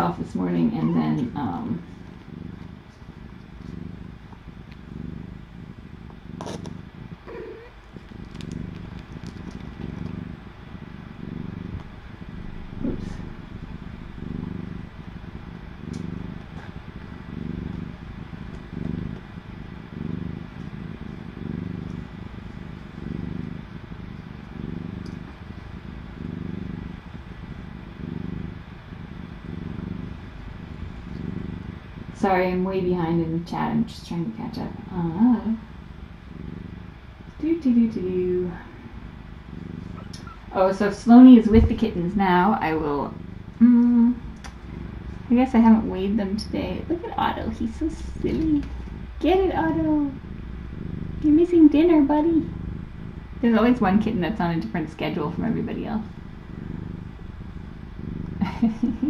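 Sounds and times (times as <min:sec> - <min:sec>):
cat purring: 0:00.0 - 0:59.0
faint clicks: 0:07.9 - 0:10.2, 0:15.9 - 0:16.8, 0:25.0 - 0:25.2, 0:39.9 - 0:40.4, 0:43.8 - 0:44.7, 0:48.2 - 0:48.9.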